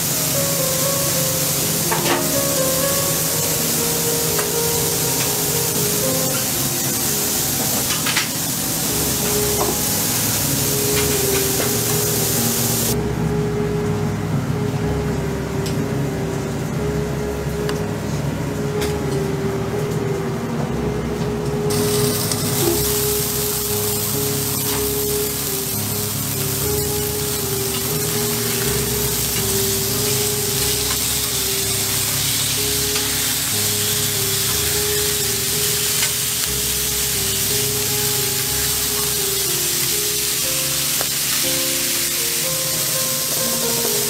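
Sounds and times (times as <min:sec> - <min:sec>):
steady hiss: 0:00.0 - 0:13.4, 0:21.6 - 0:44.0
slow background music: 0:00.0 - 0:44.0.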